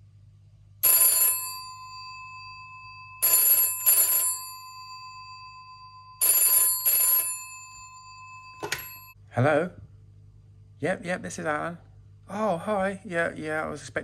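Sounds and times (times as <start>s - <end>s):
telephone bell ringing: 0.8s - 9.2s.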